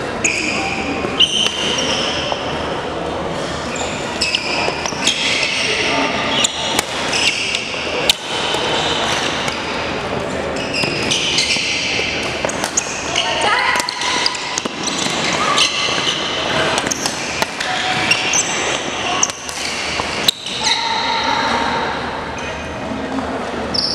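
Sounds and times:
voices in a hall: 0.0 - 23.9
shoes squeaking on wooden floor: 10.5 - 13.2, 13.9 - 20.2
rackets striking shuttlecock: 10.8 - 13.1, 13.8 - 20.6.

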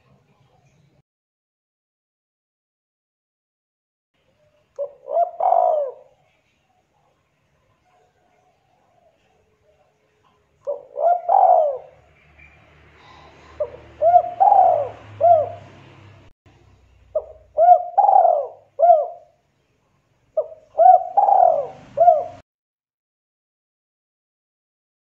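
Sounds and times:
dove cooing: 4.8 - 6.4, 10.6 - 16.2, 17.1 - 19.4, 20.4 - 22.4.

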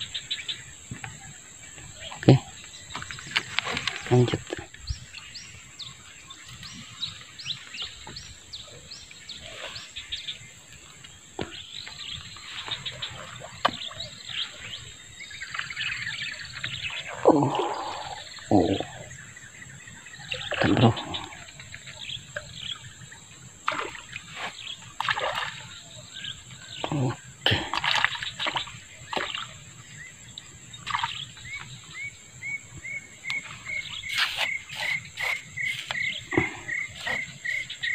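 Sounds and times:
small birds chirping: 0.0 - 37.9.

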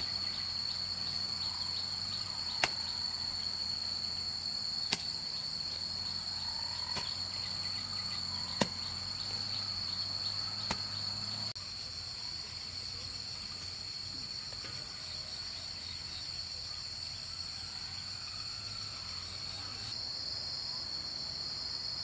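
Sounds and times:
high-pitched insect chorus: 0.0 - 22.0
hoe chopping into soil: 2.5 - 2.9, 4.8 - 5.2, 6.9 - 7.2, 8.5 - 9.0, 10.6 - 11.0.

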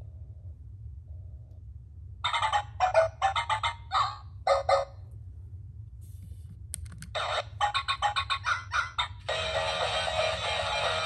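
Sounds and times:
toy robot electronic sound effects: 7.2 - 11.0.

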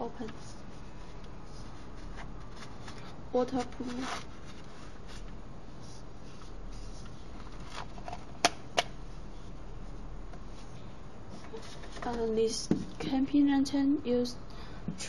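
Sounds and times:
plastic lantern handling rustle: 0.2 - 5.3, 6.2 - 8.4.

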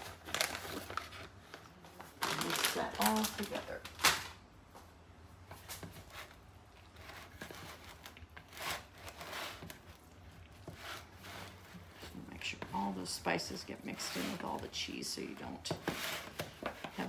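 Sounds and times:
spatula scraping in mixing bowl: 6.0 - 17.0.

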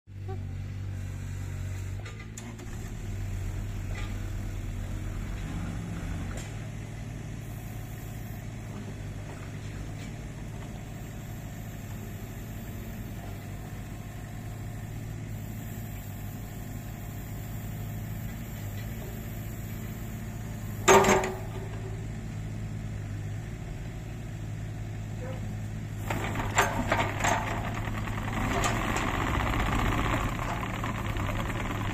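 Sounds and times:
excavator diesel engine running: 0.1 - 31.9
loud metal clank: 20.8 - 21.7
small clanks: 20.8 - 22.0, 25.2 - 31.9.

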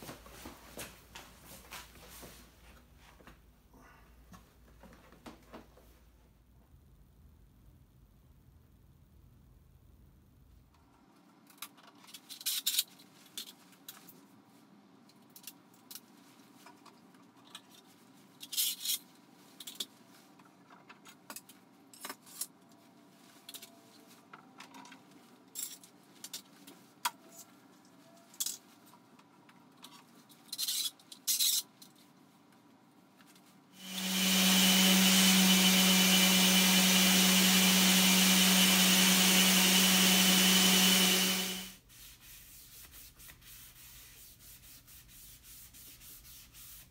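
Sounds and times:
orbital sander on wood: 33.8 - 41.8.

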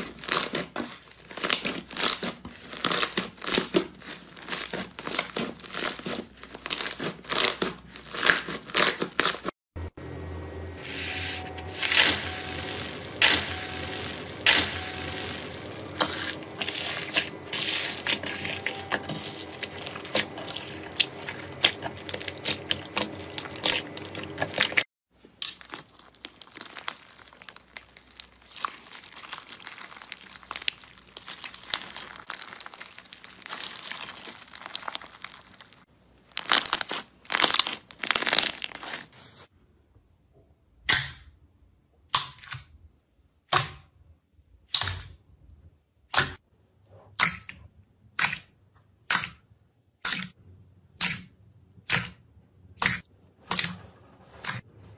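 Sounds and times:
crunchy slime crinkling: 0.0 - 9.5, 11.8 - 39.5
slime squelching and popping: 16.0 - 39.0.

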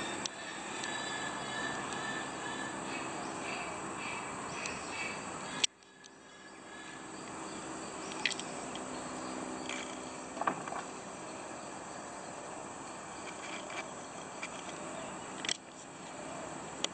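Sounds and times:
insect chorus: 0.0 - 16.9.

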